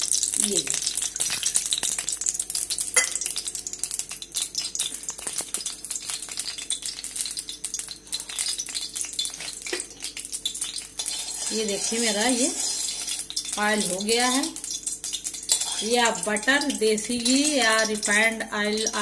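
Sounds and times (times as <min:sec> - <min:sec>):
oil sizzling and crackling: 0:00.0 - 0:19.0.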